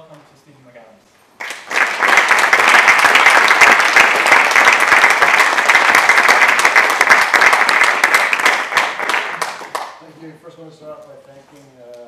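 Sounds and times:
audience applauding: 0:01.4 - 0:10.0.

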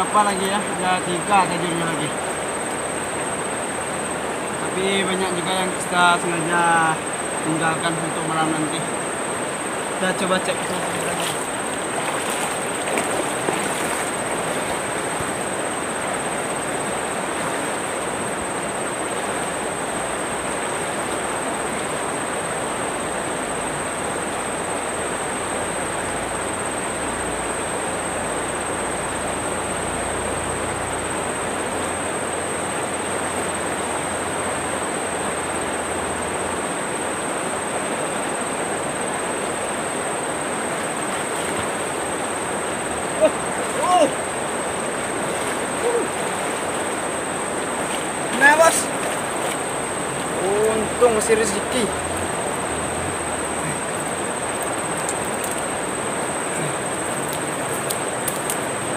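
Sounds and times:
river current rushing: 0:00.0 - 0:58.9
wading splashes: 0:10.0 - 0:19.5, 0:40.4 - 0:52.6.

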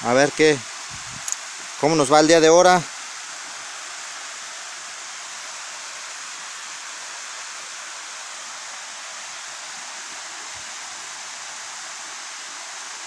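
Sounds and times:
waterfall rushing hiss: 0:00.0 - 0:13.0.

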